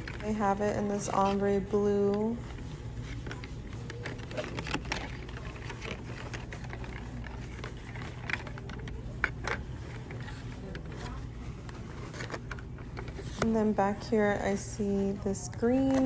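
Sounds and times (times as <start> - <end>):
low store hum: 0.0 - 16.0
plastic clips clicking and rustling: 3.2 - 13.6.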